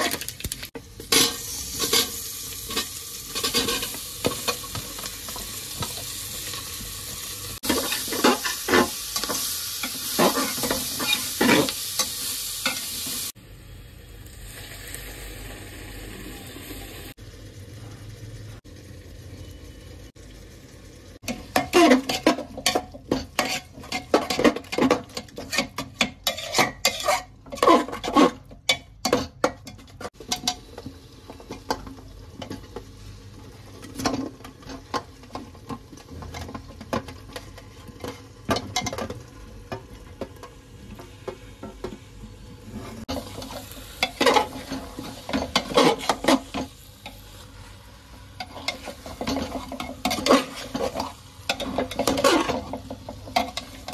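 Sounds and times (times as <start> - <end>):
faint frying sizzle: 0.0 - 53.9
spoon scraping metal pot: 21.3 - 30.6, 42.8 - 46.7, 48.4 - 53.9.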